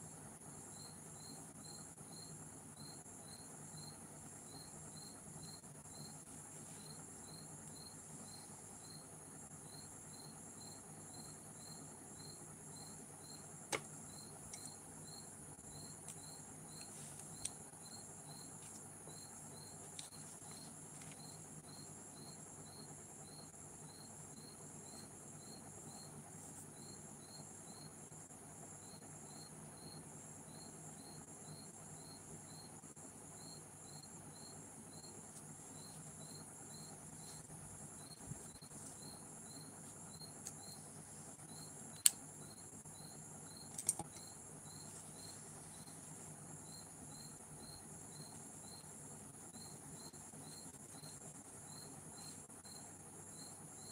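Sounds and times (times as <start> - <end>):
cricket chirping: 0.0 - 53.9
faint hiss and hum: 0.0 - 53.9
sharp clicks and taps: 13.7 - 13.9.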